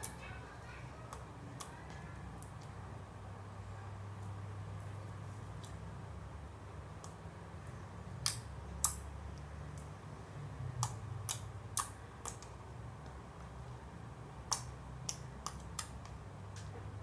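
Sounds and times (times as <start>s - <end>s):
wet slime clicks and pops: 8.2s - 9.0s, 10.8s - 12.5s, 14.4s - 16.2s.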